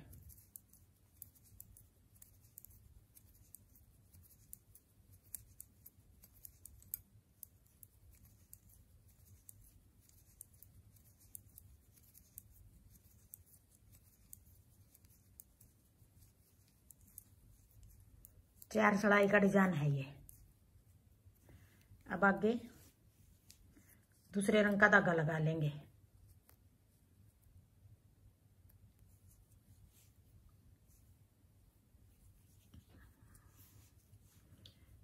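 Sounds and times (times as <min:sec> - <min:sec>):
knitting needles clicking: 0:00.0 - 0:20.5
low room hum: 0:00.0 - 0:35.0.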